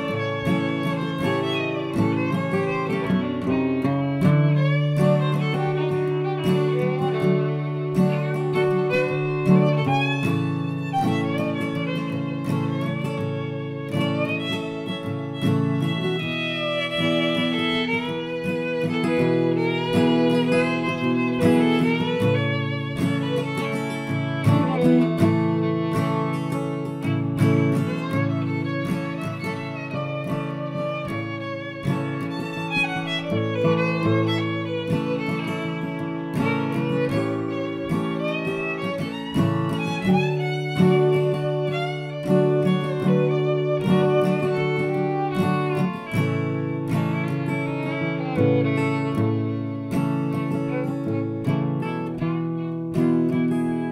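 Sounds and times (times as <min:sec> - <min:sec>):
fiddle music: 0:00.0 - 0:53.9
plucked string accompaniment: 0:00.0 - 0:53.9.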